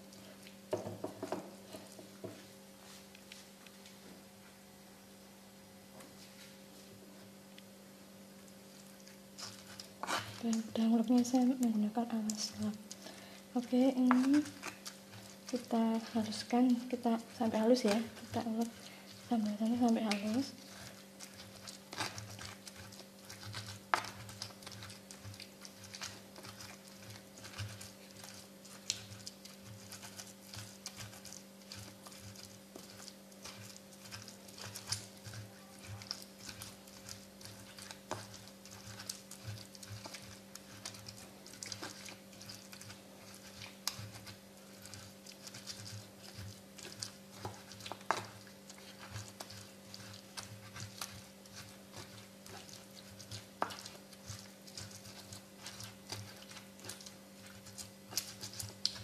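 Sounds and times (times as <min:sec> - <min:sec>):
pestle grinding in mortar: 0:00.7 - 0:02.4, 0:09.3 - 0:11.6, 0:12.3 - 0:59.0
pestle knocking against bowl: 0:00.7 - 0:02.4.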